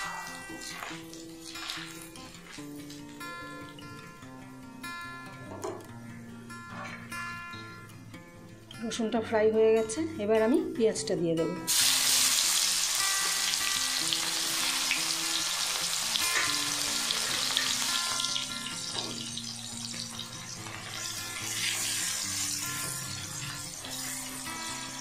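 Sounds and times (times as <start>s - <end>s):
onion sizzling in hot oil: 0.0s - 3.2s, 11.7s - 25.0s.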